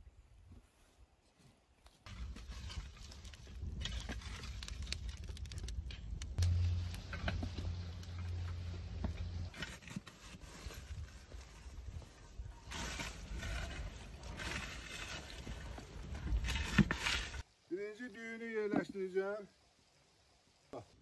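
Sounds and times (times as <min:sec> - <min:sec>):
spade pushing through coals: 0:02.1 - 0:05.6, 0:06.4 - 0:17.4
embers crackling and clinking: 0:02.1 - 0:17.4.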